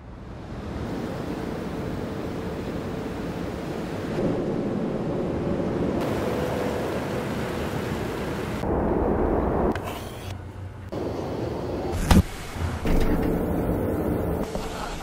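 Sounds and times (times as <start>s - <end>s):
rushing wind and surf: 0.5s - 9.8s.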